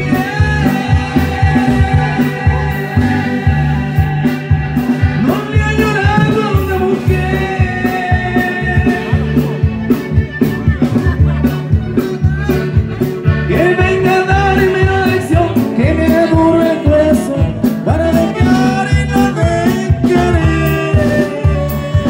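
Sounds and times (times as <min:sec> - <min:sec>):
accordion: 0:00.0 - 0:22.0
drums: 0:00.0 - 0:22.0
live band playing: 0:00.0 - 0:22.0.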